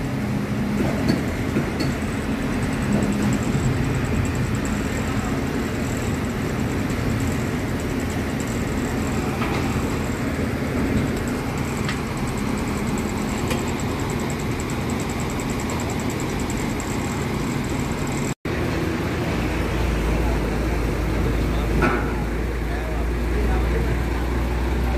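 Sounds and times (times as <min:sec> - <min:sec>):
crane diesel engine running: 0:00.0 - 0:24.9.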